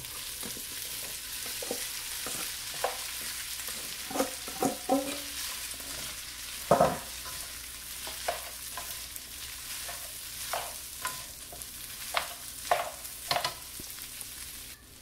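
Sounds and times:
rice sizzling in a frying pan: 0:00.0 - 0:15.0
spatula scraping a pan: 0:00.2 - 0:13.6
spatula knocking on a pan: 0:04.1 - 0:05.3, 0:06.6 - 0:07.4, 0:12.2 - 0:13.6.

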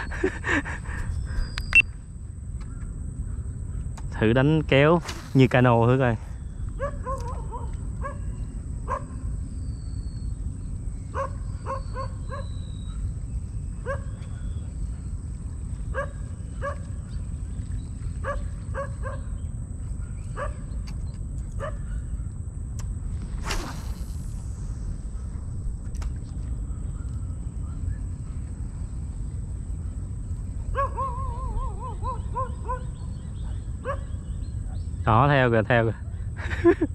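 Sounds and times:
steady low rumble: 0:00.0 - 0:35.3
thin high whine: 0:04.2 - 0:06.6, 0:22.8 - 0:30.6
dog barking: 0:06.8 - 0:08.3, 0:08.9 - 0:09.2, 0:11.2 - 0:12.5, 0:13.9 - 0:14.1, 0:16.0 - 0:16.9, 0:18.2 - 0:19.3, 0:20.4 - 0:20.6, 0:21.6 - 0:22.0, 0:30.7 - 0:32.9, 0:33.8 - 0:34.2.

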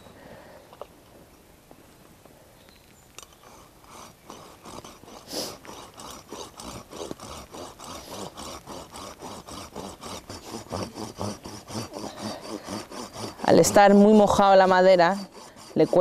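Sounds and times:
hand saw cutting wet wood: 0:03.4 - 0:16.0.

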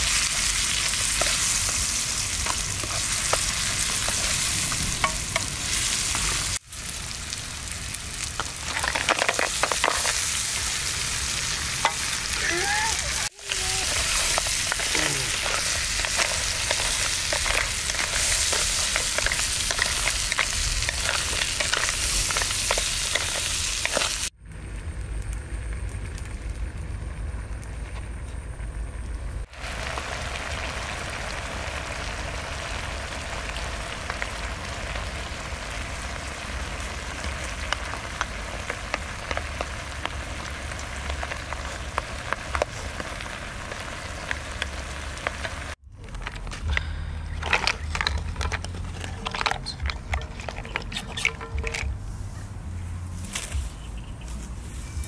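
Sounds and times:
liquid sizzling in a pan: 0:00.0 - 0:24.4, 0:29.4 - 0:45.8.

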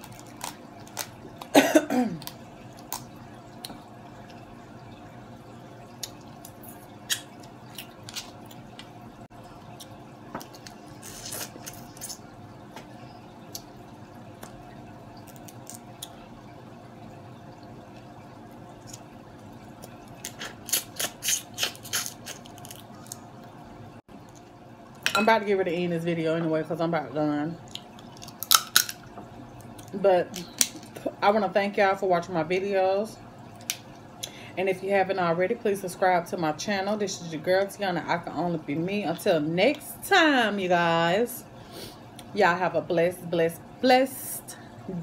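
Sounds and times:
crab shell cracking: 0:00.0 - 0:01.5, 0:19.8 - 0:23.3, 0:27.7 - 0:29.0
wet sucking and lip smacking: 0:20.2 - 0:22.6.

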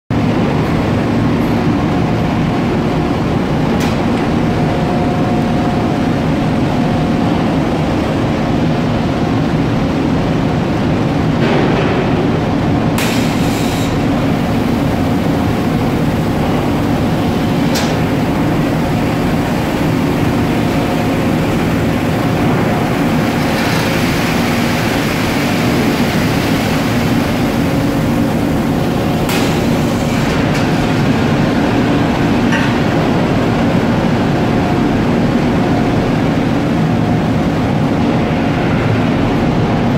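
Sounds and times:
press mechanical rumble and hum: 0:00.1 - 0:39.9
hiss: 0:13.0 - 0:14.1.

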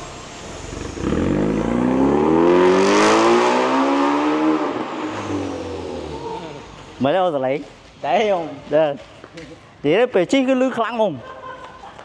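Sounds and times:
car engine accelerating: 0:00.0 - 0:06.9.

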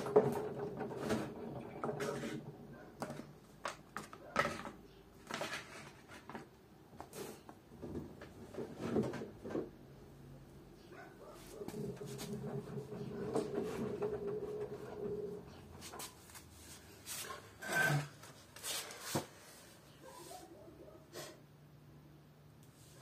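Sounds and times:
washing machine motor hum: 0:00.0 - 0:03.1, 0:11.6 - 0:15.8.

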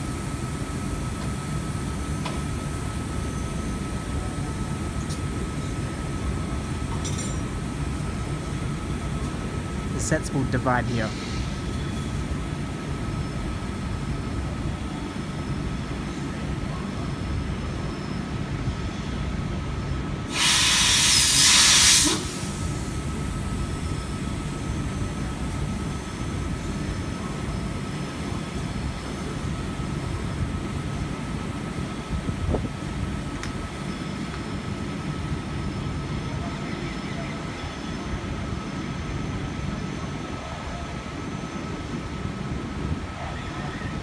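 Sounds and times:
electric train humming: 0:00.0 - 0:44.0
compressed air hiss: 0:11.1 - 0:11.6, 0:20.3 - 0:23.0.

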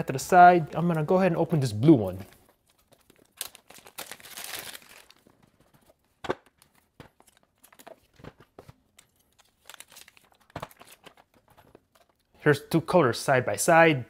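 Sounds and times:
packaging ticks and rustles: 0:02.1 - 0:12.4.

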